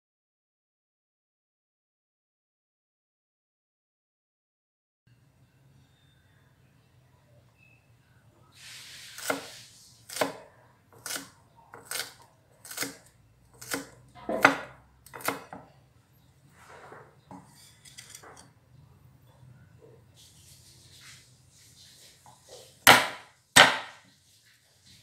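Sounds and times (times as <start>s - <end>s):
short hiss: 8.6s - 9.9s.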